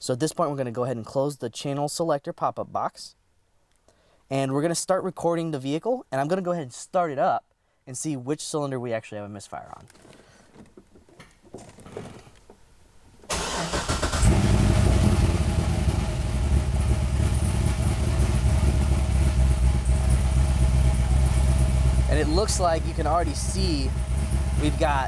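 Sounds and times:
car engine starting and idling: 13.3s - 25.0s.

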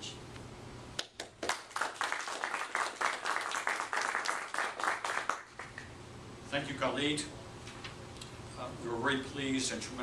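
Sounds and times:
audience applauding: 1.1s - 5.9s.

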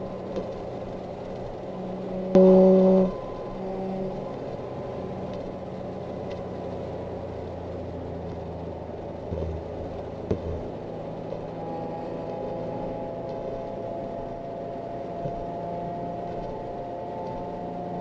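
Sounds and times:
exhaust droning: 0.0s - 18.0s.

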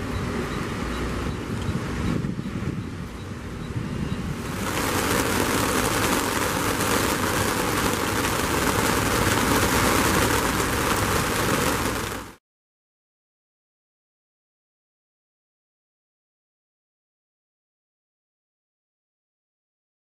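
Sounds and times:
heavy rain hissing: 4.3s - 12.4s.

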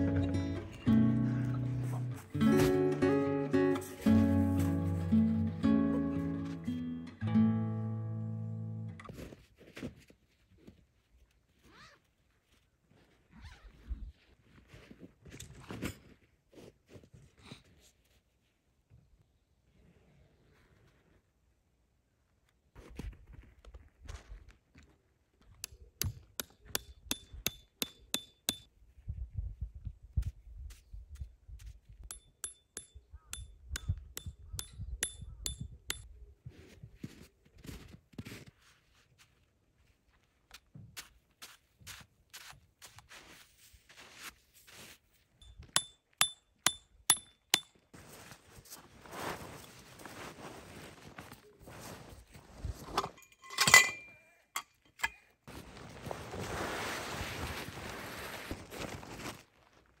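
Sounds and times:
tent fabric rustling: 3.7s - 6.7s, 9.2s - 14.9s, 47.9s - 53.2s, 55.5s - 60.0s
crunching scuffs in snow: 3.8s - 5.2s, 41.0s - 45.3s, 48.0s - 52.9s, 55.5s - 60.0s
hammer tapping metal stake: 25.6s - 28.7s, 32.0s - 36.1s, 45.4s - 47.8s
metal fittings clinking: 53.0s - 55.2s.

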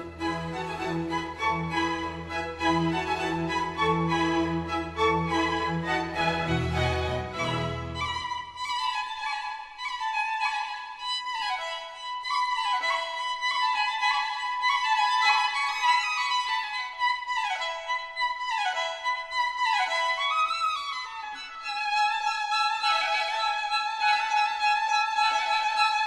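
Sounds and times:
violin melody: 0.0s - 26.0s.

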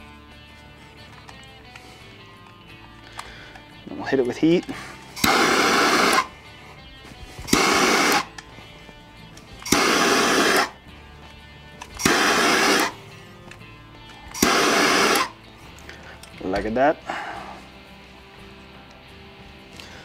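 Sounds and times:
faint background music: 0.0s - 20.0s
butane torch blasting: 4.7s - 6.4s, 7.3s - 8.4s, 9.6s - 10.8s, 11.9s - 13.0s, 14.3s - 15.4s.

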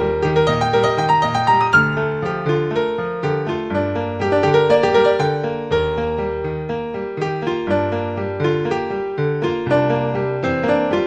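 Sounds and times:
keyboard music: 0.0s - 6.7s.

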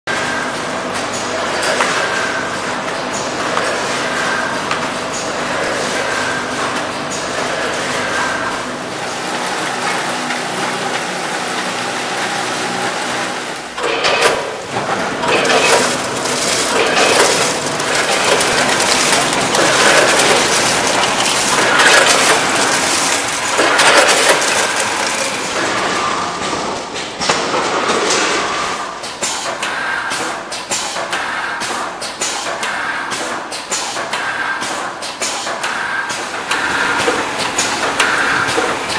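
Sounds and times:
packing machine hum: 0.1s - 38.9s
machine clattering and rattling: 8.9s - 38.9s.

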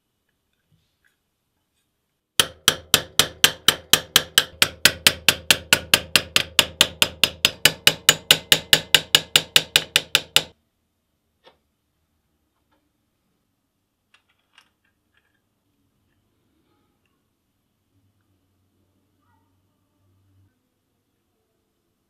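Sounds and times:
hammer striking metal: 2.4s - 10.6s.

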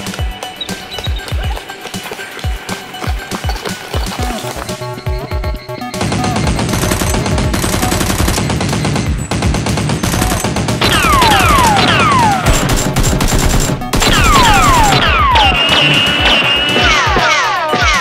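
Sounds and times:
background music: 0.0s - 18.0s
rapid automatic gunfire: 6.0s - 16.5s
falling whistles: 15.1s - 17.1s.

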